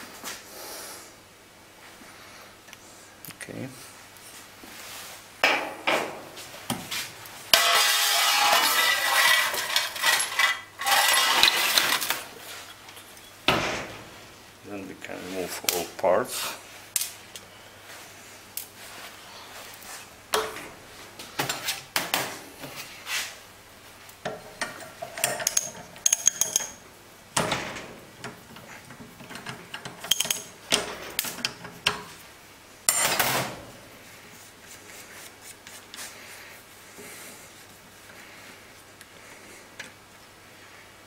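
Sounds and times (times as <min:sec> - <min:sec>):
small steel parts clinking: 0:07.6 - 0:13.4, 0:25.0 - 0:26.8, 0:29.3 - 0:30.6.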